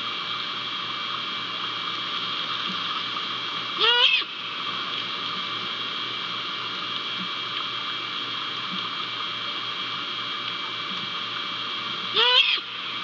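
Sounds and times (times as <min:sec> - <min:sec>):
background hiss: 0:00.0 - 0:13.0
owl call: 0:03.8 - 0:04.3, 0:12.1 - 0:12.8.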